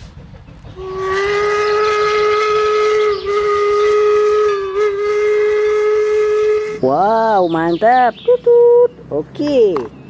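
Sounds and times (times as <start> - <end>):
steam locomotive whistle blast: 0.8 - 7.0.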